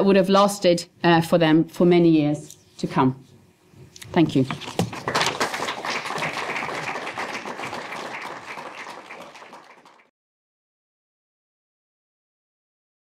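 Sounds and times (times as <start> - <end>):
audience applauding: 4.8 - 10.1.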